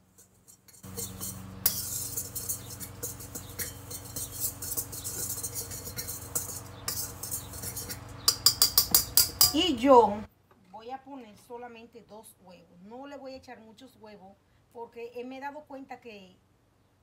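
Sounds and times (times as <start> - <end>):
whisk clinking against metal bowl: 0.0 - 9.7.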